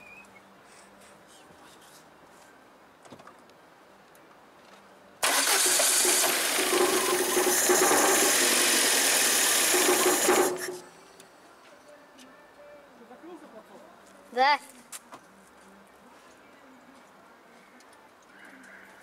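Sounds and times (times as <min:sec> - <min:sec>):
starter cranking car engine: 0:05.2 - 0:10.9.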